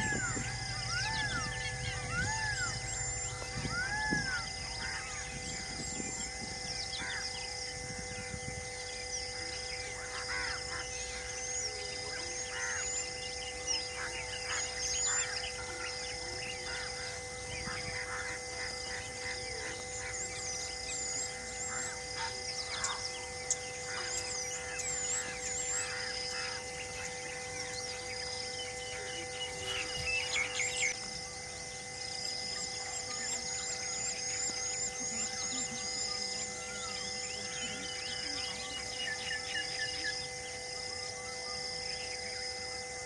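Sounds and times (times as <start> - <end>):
steady drone of held tones: 0.0 - 43.0
wild birds chirping and whistling: 0.0 - 43.0.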